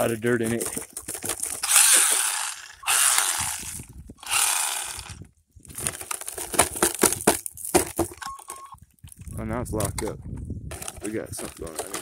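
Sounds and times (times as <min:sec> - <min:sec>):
toy truck motor grinding: 0:01.6 - 0:05.3.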